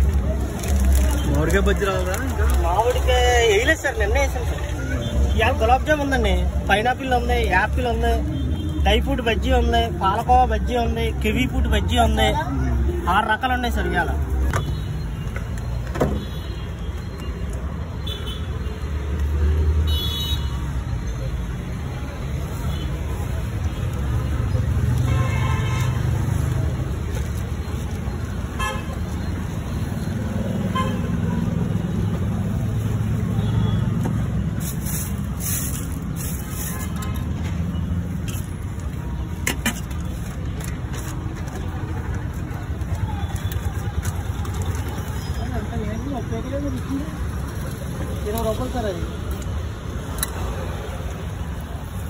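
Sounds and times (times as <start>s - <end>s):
street noise rumble: 0.0s - 52.0s.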